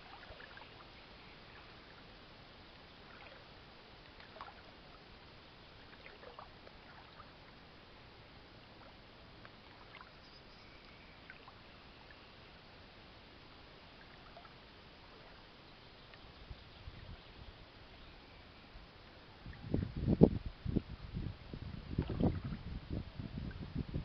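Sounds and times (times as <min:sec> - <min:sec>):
faint water lapping and trickling: 0:00.0 - 0:24.0
steady low hiss: 0:00.0 - 0:24.0
faint chirps: 0:10.0 - 0:12.6.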